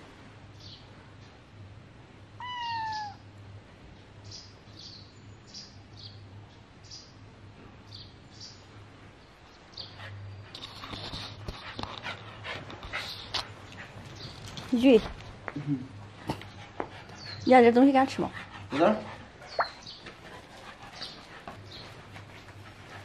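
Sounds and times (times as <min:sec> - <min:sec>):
kitten meowing: 0:02.4 - 0:03.2.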